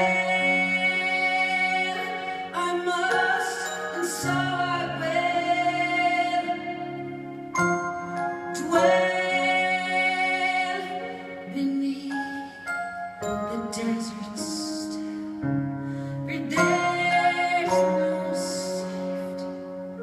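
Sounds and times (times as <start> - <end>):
keyboard playing sustained chords: 0.0 - 20.0.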